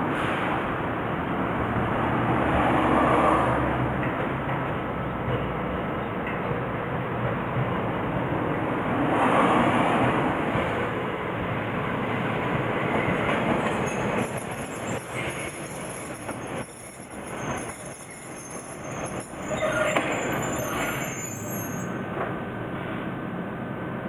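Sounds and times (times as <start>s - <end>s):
high wheel squeal: 13.6s - 22.0s.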